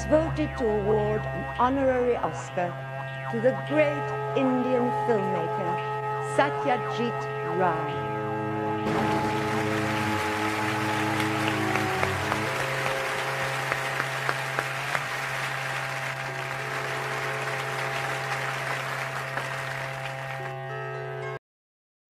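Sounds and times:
music holding low chord: 0:00.0 - 0:21.4
audience applauding: 0:08.9 - 0:20.6.

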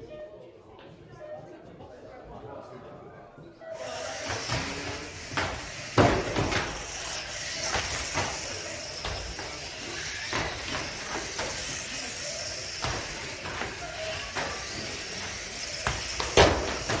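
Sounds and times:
electric motors whining: 0:03.7 - 0:17.0.

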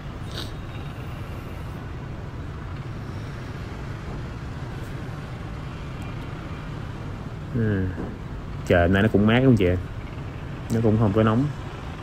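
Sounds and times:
city traffic rumble: 0:00.0 - 0:12.0.

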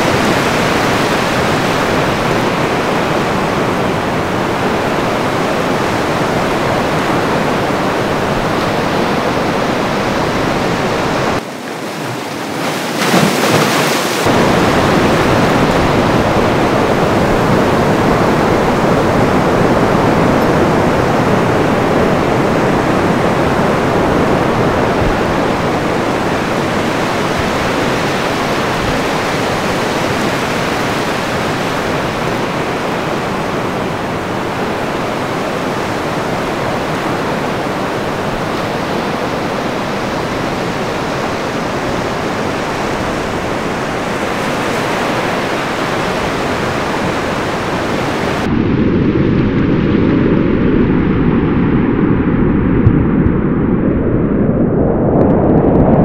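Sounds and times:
ocean surf crashing: 0:00.0 - 0:52.7.

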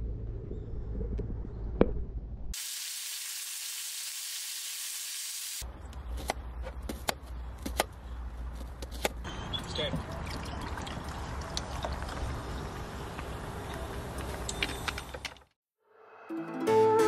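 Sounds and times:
meat sizzling on a grill plate: 0:02.6 - 0:05.6.

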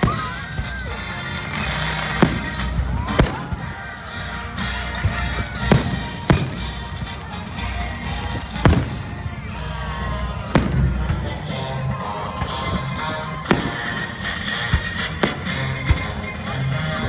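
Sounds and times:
music playing: 0:00.0 - 0:17.0
fireworks bursting in bangs: 0:01.4 - 0:03.7, 0:05.1 - 0:06.8, 0:08.3 - 0:09.2, 0:10.5 - 0:11.2, 0:13.4 - 0:14.1.

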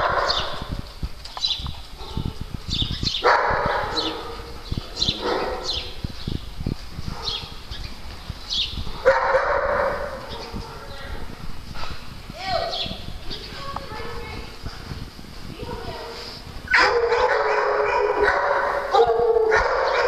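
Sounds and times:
small dogs barking and yipping: 0:00.0 - 0:00.8, 0:03.2 - 0:06.1, 0:09.0 - 0:11.2, 0:16.7 - 0:20.0.

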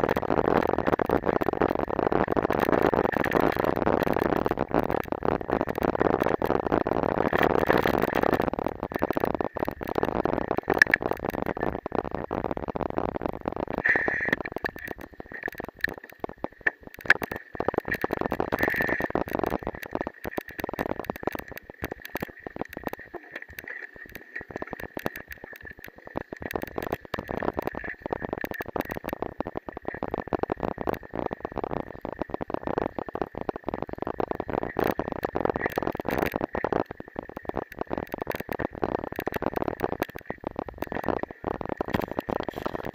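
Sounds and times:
bicycle tyres rolling through mud: 0:00.0 - 0:42.9.

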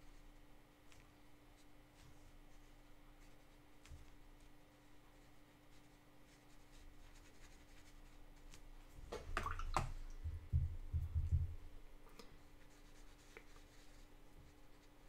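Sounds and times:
brush stroking on paper: 0:01.6 - 0:08.7, 0:12.4 - 0:15.0
dull low thumps: 0:10.1 - 0:11.8.

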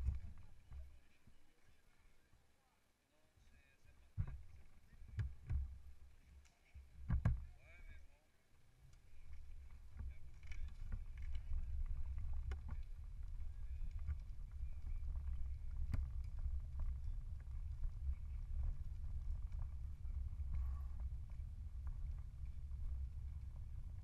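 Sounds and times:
bicycle rolling rumble: 0:00.0 - 0:01.0, 0:09.0 - 0:24.0
wind on microphone: 0:09.5 - 0:24.0.

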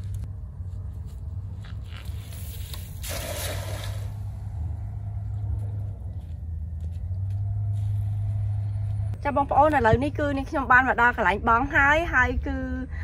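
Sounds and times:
steady low rumble: 0:00.0 - 0:13.0
cast net splashing on water: 0:02.3 - 0:04.3.

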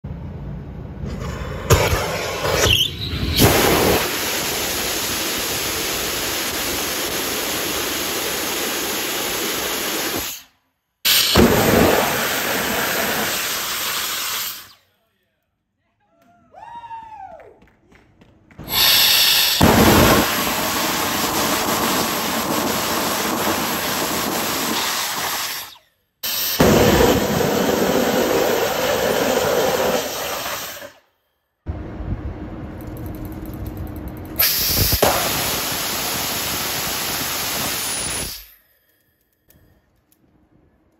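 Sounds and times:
rocket engine rushing hiss: 0:01.0 - 0:14.8, 0:18.6 - 0:31.0, 0:34.4 - 0:38.6.

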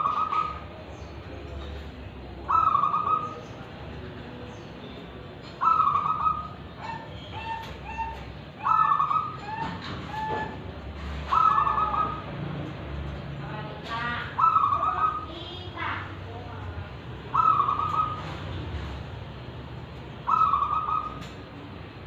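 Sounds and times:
dove cooing: 0:00.0 - 0:00.8, 0:02.4 - 0:03.6, 0:05.4 - 0:12.3, 0:14.3 - 0:15.3, 0:17.3 - 0:19.0, 0:20.2 - 0:21.4.

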